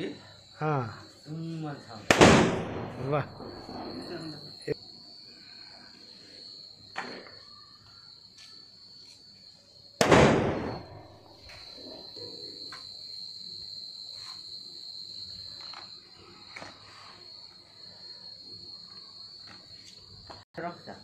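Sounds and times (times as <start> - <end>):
crickets chirping: 0.0 - 21.0
firecracker bang: 2.0 - 4.4, 10.0 - 11.4.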